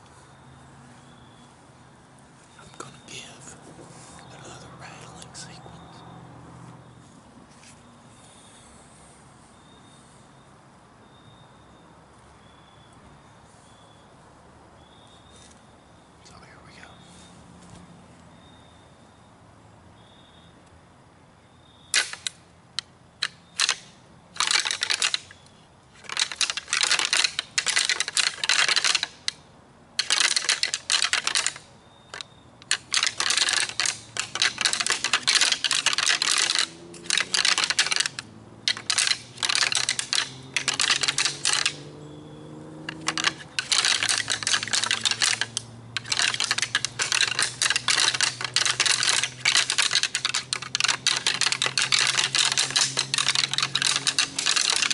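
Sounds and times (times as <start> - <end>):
deer antlers clattering together: 23.2 - 23.8, 24.4 - 25.3, 26.0 - 29.4, 30.0 - 41.9, 42.8 - 54.9.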